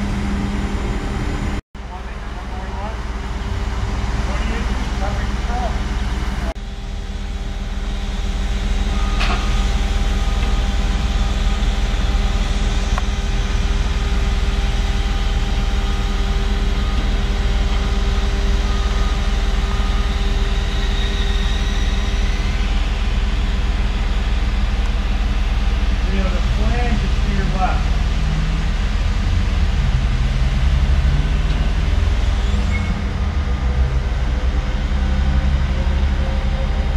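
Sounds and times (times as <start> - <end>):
crane engine running: 0.0 - 36.9.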